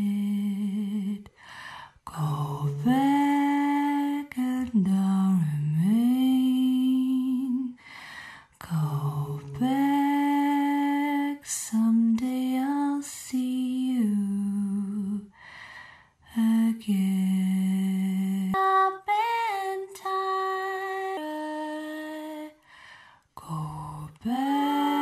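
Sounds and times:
person singing slow melody: 0.0s - 7.8s, 8.5s - 15.4s, 23.4s - 25.0s.

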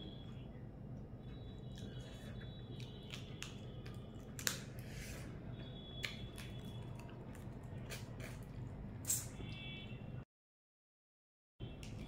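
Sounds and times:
person chewing food: 1.2s - 9.2s.

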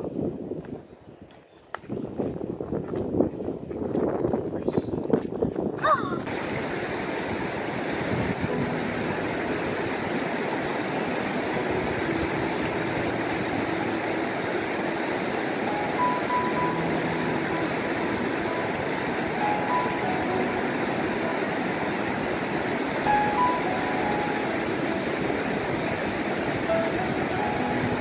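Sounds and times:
wind: 0.0s - 28.0s
stream water rushing: 5.9s - 28.0s.

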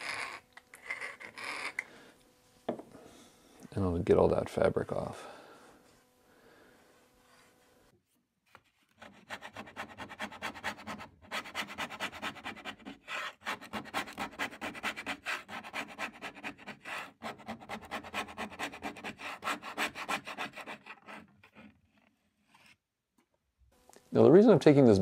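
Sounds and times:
scraper scraping wood: 8.5s - 22.8s.

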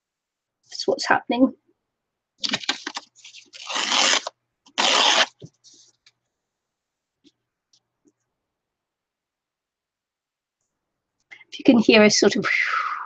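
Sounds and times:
paper ripping: 2.4s - 5.5s
paper being handled: 2.4s - 6.0s.

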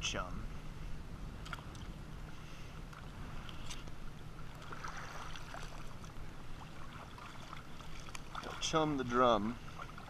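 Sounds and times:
water lapping at hull: 0.5s - 10.0s
light splashes in water: 4.5s - 8.8s.

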